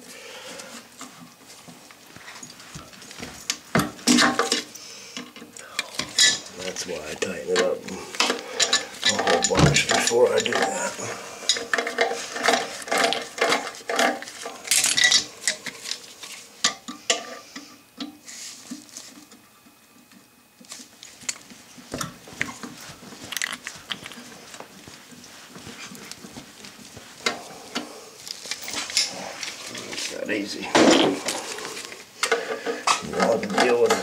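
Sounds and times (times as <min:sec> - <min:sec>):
tools clinking on metal: 0:05.9 - 0:06.5, 0:07.6 - 0:10.8, 0:11.5 - 0:15.6.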